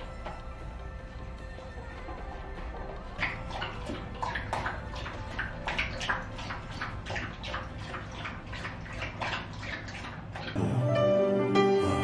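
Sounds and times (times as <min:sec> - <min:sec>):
dog lapping food from bowl: 0:01.9 - 0:10.6.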